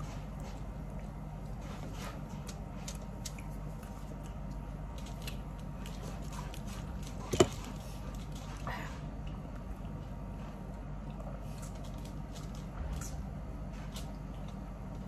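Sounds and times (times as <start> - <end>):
steady low hum: 0.0 - 15.0
chewing clicks and smacks: 2.3 - 6.4.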